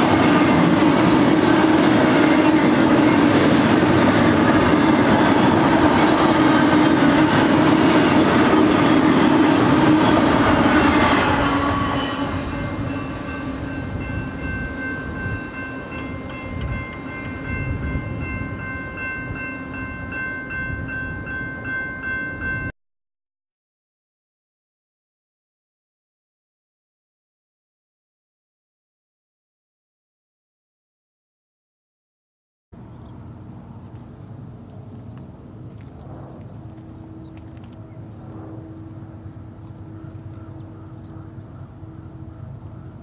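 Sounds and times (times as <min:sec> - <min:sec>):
train wheels rolling past: 0:00.0 - 0:22.7, 0:32.8 - 0:43.0
crossing bell ringing: 0:10.6 - 0:22.8.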